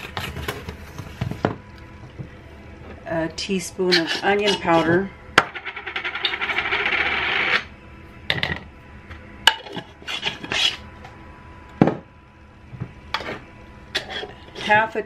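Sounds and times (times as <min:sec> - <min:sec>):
teaspoon scraping in plastic jar: 0:03.9 - 0:04.9.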